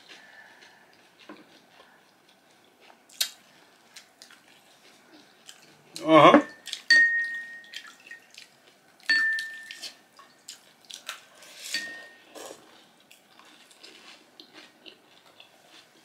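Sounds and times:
people chewing: 0:00.0 - 0:16.0
spoons clinking on ceramic bowls: 0:06.4 - 0:08.2, 0:09.1 - 0:10.0, 0:11.7 - 0:12.3.

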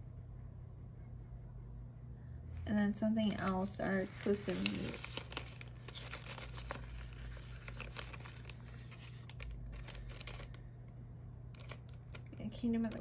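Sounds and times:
plastic packaging crinkling: 0:03.2 - 0:10.6, 0:11.5 - 0:13.0.

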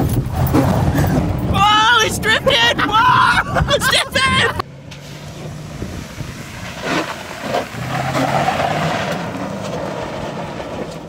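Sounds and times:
car engine running hard: 0:04.2 - 0:11.0.

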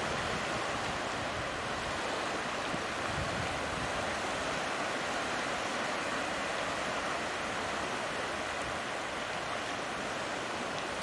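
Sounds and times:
surf rushing: 0:00.0 - 0:11.0.

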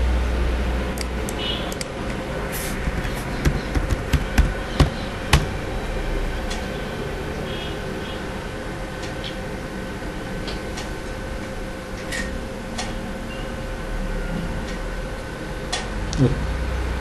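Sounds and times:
steady background hum: 0:00.0 - 0:17.0
computer keyboard typing: 0:02.7 - 0:05.6.

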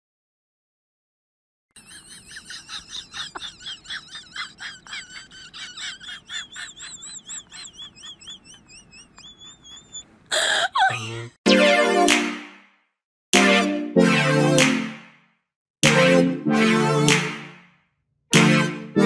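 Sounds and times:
high whistle-like chirps: 0:06.4 - 0:10.1.

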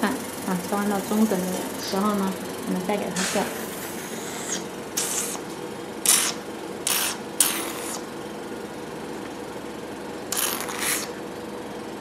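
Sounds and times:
machine pump humming: 0:00.0 - 0:12.0
suction handpiece hissing: 0:03.2 - 0:05.4, 0:06.0 - 0:08.1, 0:10.3 - 0:11.2.

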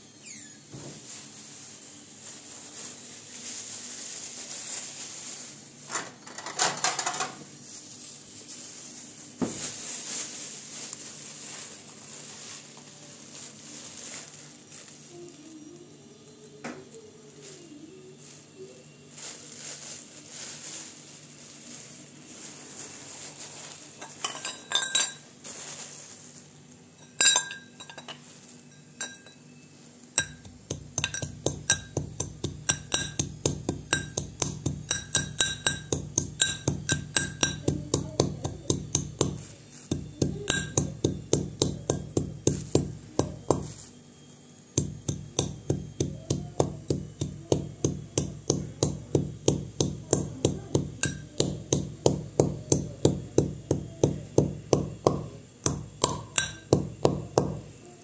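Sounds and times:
metal clinks: 0:24.0 - 0:25.3, 0:27.0 - 0:43.8
brass pestle pounding in mortar: 0:30.2 - 0:43.8, 0:44.8 - 0:57.8.

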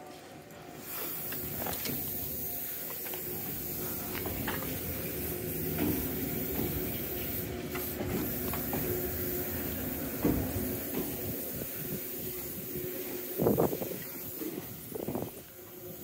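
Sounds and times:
electric train hum and hiss: 0:00.0 - 0:16.0.

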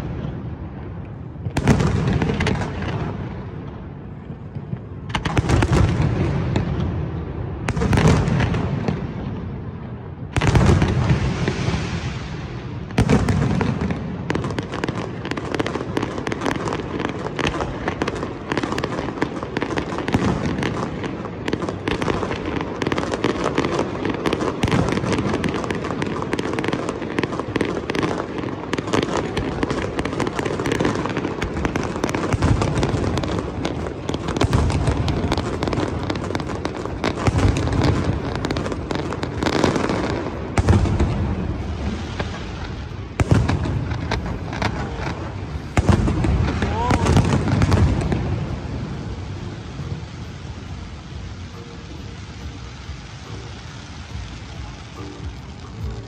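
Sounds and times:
deep firework booms: 0:00.0 - 0:09.6, 0:10.2 - 0:50.2
fireworks bangs and pops: 0:00.0 - 0:56.0.

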